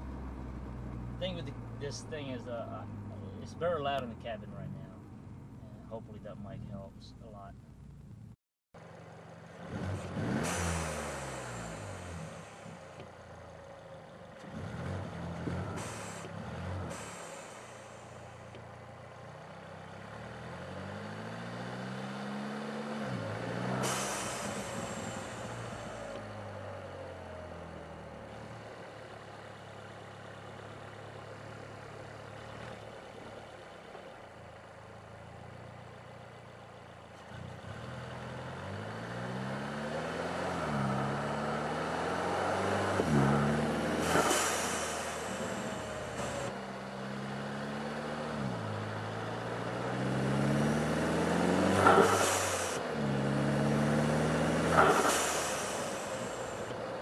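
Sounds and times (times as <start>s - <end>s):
car engine accelerating hard: 8.8s - 57.0s
blow-off valve rush of air: 23.8s - 26.0s, 44.0s - 46.5s, 51.8s - 52.8s, 54.7s - 56.7s.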